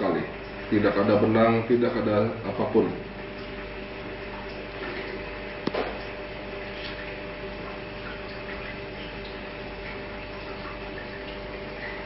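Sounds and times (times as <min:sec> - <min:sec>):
room hum and hiss: 0:00.0 - 0:12.0.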